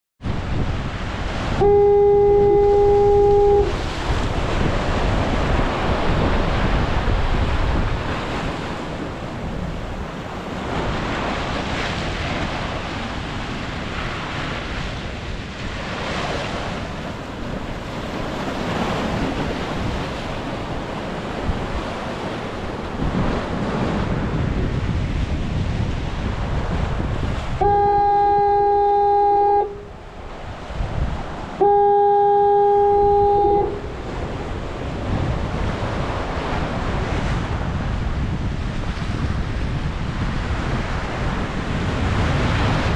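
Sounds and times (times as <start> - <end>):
surf washing against rocks: 0.2 - 42.9
wind buffeting microphone: 0.2 - 42.9
foghorn blast: 1.3 - 4.3, 27.5 - 30.0, 31.6 - 34.4.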